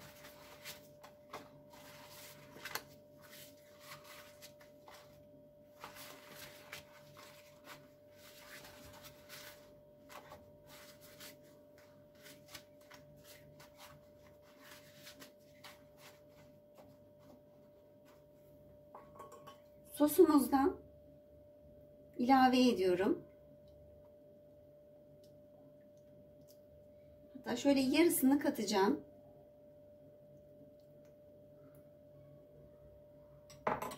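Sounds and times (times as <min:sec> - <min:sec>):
pastry sheets rustling and tearing: 0:00.0 - 0:17.4
faint steady hum: 0:00.0 - 0:33.6.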